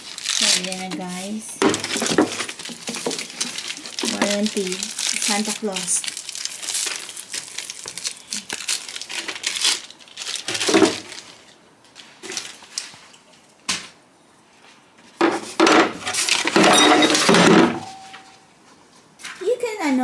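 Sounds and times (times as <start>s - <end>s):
paper rustling: 0.0s - 13.2s
plastic bag crinkling: 0.0s - 13.2s
hardware clattering in wooden drawer: 15.6s - 18.3s.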